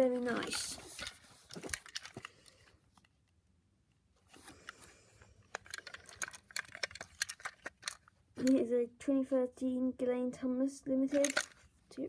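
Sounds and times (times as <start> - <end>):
plastic toy clicks and taps: 11.1 - 11.6.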